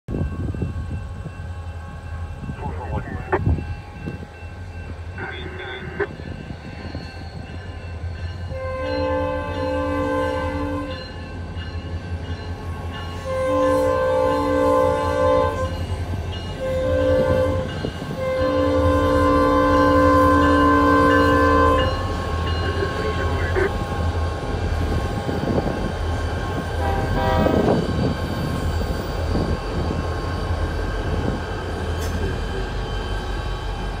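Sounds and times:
crossing bell ringing: 0.1s - 24.2s
diesel locomotive rumble: 0.1s - 34.0s
train air horn blasts: 8.5s - 11.0s, 13.2s - 15.8s, 16.6s - 23.7s, 26.7s - 27.8s.

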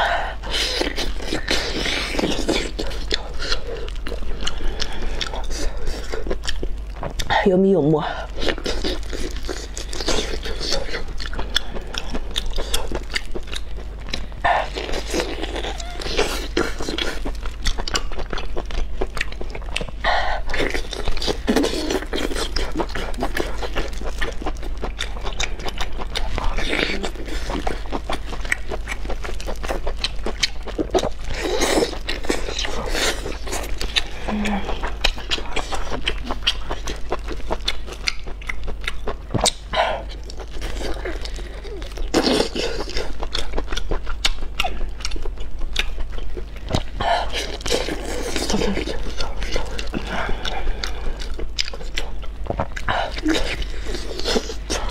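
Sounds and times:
wet chewing and smacking: 0.0s - 54.9s.

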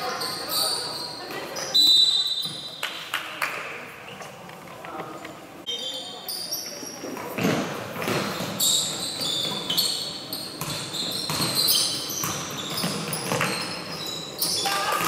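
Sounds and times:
sneakers squeaking: 0.0s - 3.2s, 5.7s - 15.0s
basketball bouncing on court: 7.4s - 15.0s.

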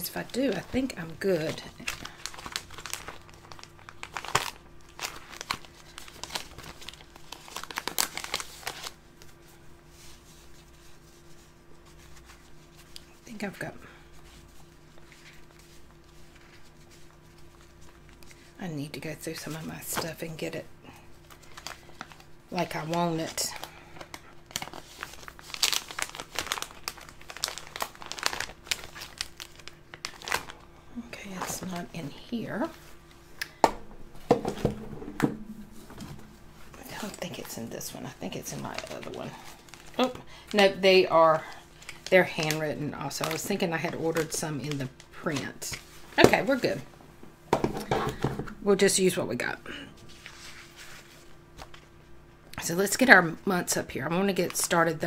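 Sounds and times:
sticker sheets crinkling: 0.1s - 9.4s, 21.3s - 33.0s, 35.8s - 46.0s
paper sheets rustling: 50.1s - 51.9s.

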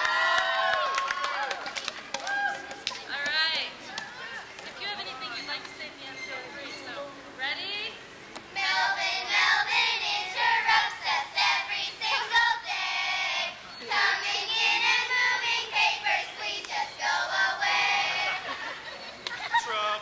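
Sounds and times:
children singing in unison: 8.6s - 18.6s.

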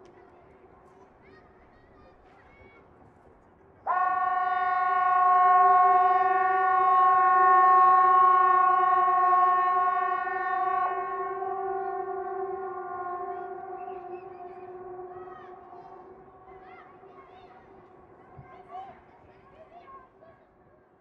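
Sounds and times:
warning siren steady tone: 3.9s - 17.1s.

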